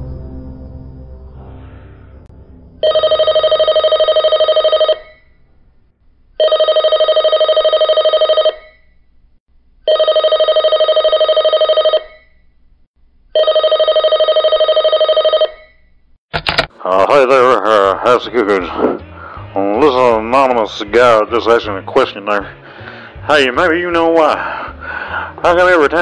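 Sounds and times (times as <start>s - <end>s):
telephone ringing with warbling trill: 2.8s - 5.4s, 6.4s - 9.0s, 9.9s - 12.4s, 13.4s - 15.9s.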